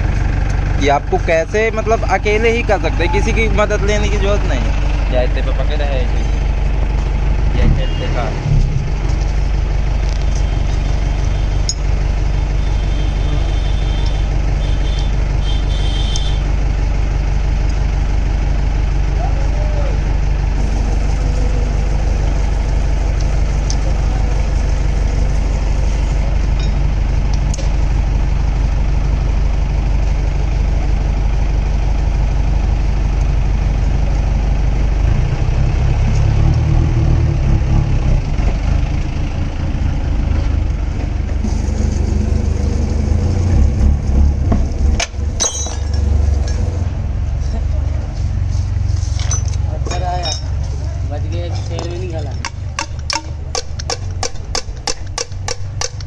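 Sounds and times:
engine rumbling: 0:00.0 - 0:56.0
spanner metal clicks: 0:52.4 - 0:56.0.

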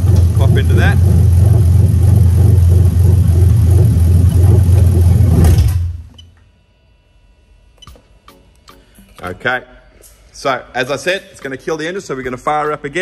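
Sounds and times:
car engine idling and stalling: 0:00.0 - 0:06.1.

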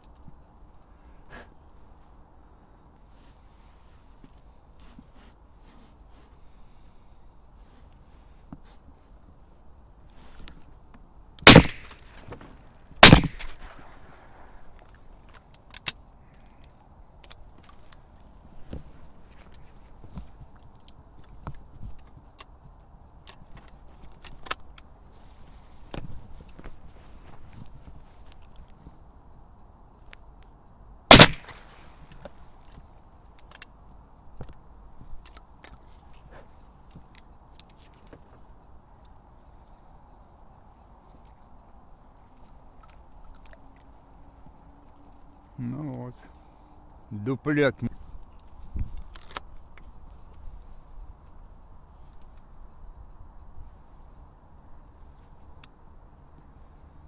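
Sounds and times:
faint clicks and rustles: 0:02.8 - 0:11.1, 0:13.4 - 0:30.6, 0:31.4 - 0:45.5
shotgun shots with echo: 0:11.4 - 0:12.3, 0:13.0 - 0:14.0, 0:31.1 - 0:31.7.

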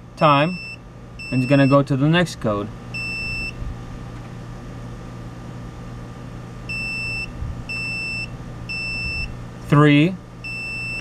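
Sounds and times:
multimeter high beeps: 0:00.4 - 0:01.9, 0:02.9 - 0:03.6, 0:06.7 - 0:09.3, 0:10.4 - 0:11.0.

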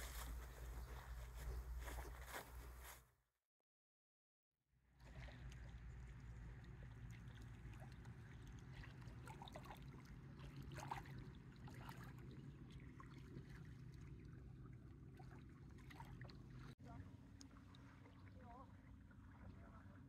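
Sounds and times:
distant motorboat engine hum: 0:04.9 - 0:20.0.

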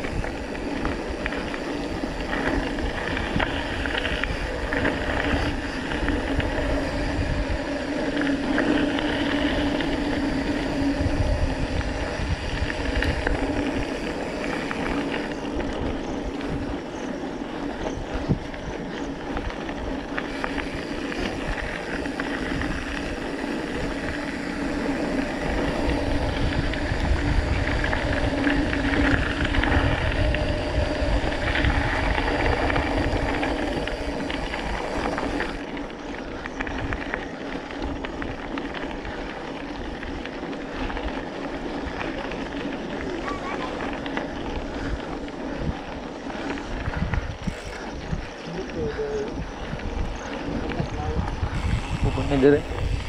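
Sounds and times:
bike rattling over stones: 0:00.0 - 0:53.0
bike tyres on gravel: 0:00.0 - 0:53.0
wind rumble on camera: 0:00.0 - 0:53.0.

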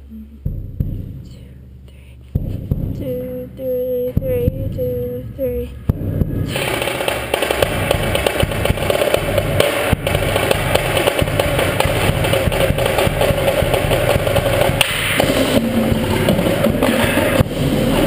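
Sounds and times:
drumline playing: 0:05.8 - 0:18.0.

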